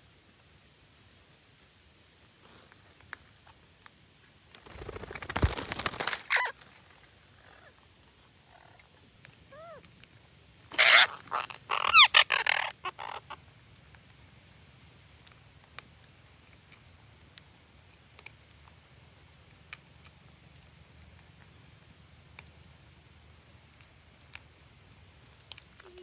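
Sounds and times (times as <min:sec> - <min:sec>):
parakeets screeching: 0:06.3 - 0:06.5, 0:10.7 - 0:13.4.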